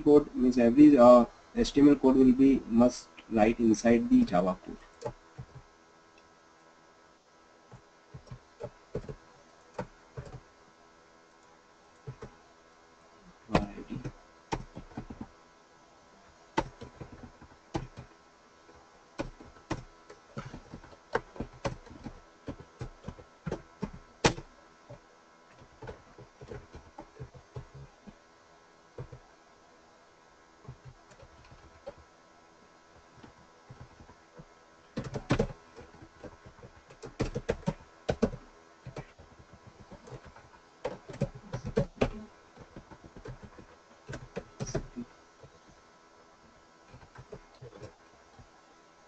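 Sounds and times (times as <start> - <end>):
computer keyboard typing: 7.7 - 10.4, 12.0 - 12.3, 13.5 - 15.3, 16.5 - 18.1, 18.7 - 28.2, 29.0 - 29.3, 30.6 - 32.1, 32.9 - 45.7, 46.9 - 48.5.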